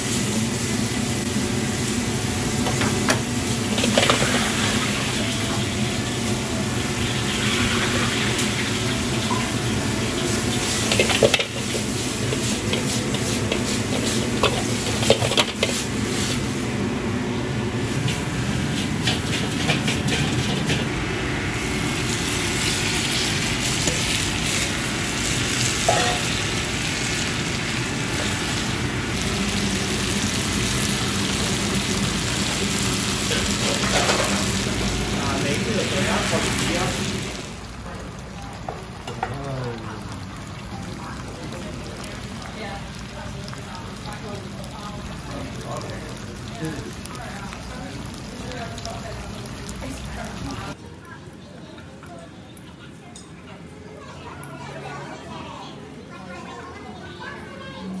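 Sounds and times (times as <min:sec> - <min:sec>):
food sizzling in wok: 0:00.0 - 0:50.8
gas wok burner roaring: 0:00.0 - 0:50.8
metal ladle clanking on wok: 0:25.8 - 0:26.4.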